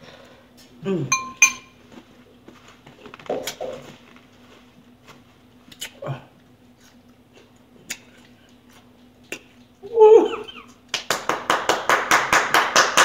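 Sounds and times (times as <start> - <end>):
mouth noises while chewing: 3.0 - 4.0, 5.6 - 10.9.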